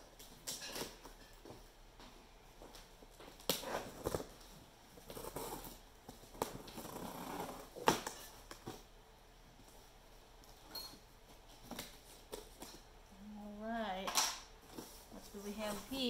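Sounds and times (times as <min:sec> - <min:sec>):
cardboard rustling and scraping: 0:03.6 - 0:08.9.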